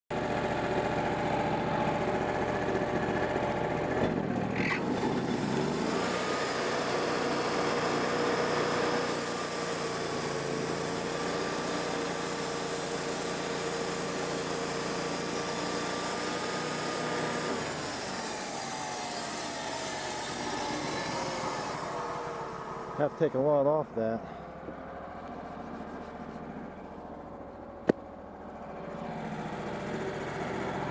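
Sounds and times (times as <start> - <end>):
sawmill engine revving: 0.1 - 30.9
band blade cutting log: 4.0 - 22.3.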